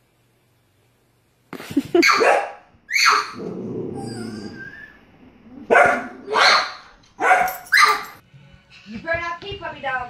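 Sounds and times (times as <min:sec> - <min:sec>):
dog barking: 0:02.0 - 0:03.4, 0:05.7 - 0:08.2.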